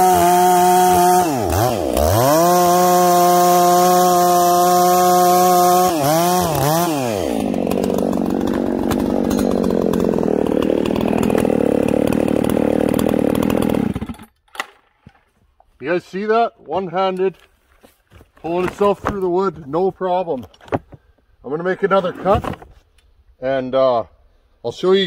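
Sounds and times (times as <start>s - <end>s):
chainsaw idling: 0.0s - 14.3s
chainsaw cutting through log: 0.0s - 14.8s.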